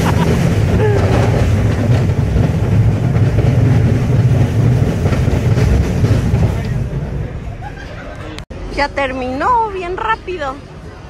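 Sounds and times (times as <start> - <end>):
thrill ride rumble and clatter: 0.0 - 11.0.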